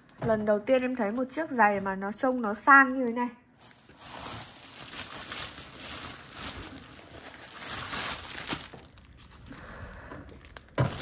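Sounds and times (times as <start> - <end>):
packaging crinkling: 3.6 - 11.0.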